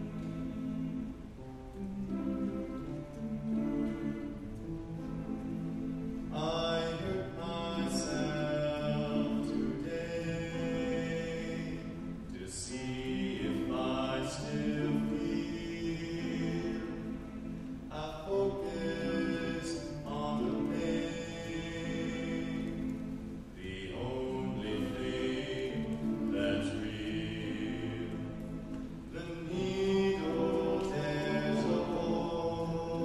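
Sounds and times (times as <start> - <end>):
youth choir singing: 12.7 - 17.3, 23.6 - 33.0.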